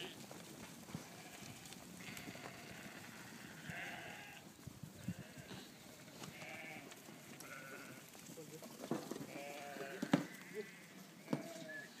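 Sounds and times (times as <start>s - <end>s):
sheep bleating: 0.0s - 0.2s, 1.0s - 4.4s, 5.0s - 8.1s, 9.3s - 12.0s.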